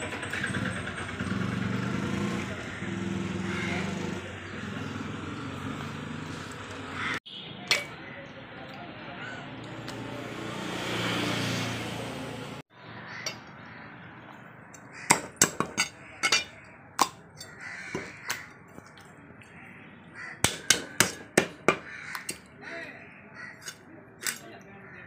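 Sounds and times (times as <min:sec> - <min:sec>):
knife chopping on wooden block: 0:15.1 - 0:16.4, 0:20.4 - 0:22.4.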